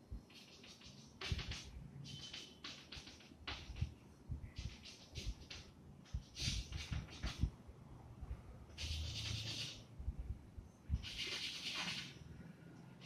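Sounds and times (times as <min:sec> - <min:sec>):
chalk scratching on blackboard: 0:00.3 - 0:03.9, 0:04.6 - 0:07.5, 0:08.8 - 0:09.9, 0:11.0 - 0:12.3
chalk tapping on board: 0:00.3 - 0:03.9, 0:04.6 - 0:07.5, 0:08.8 - 0:09.8, 0:11.0 - 0:12.2.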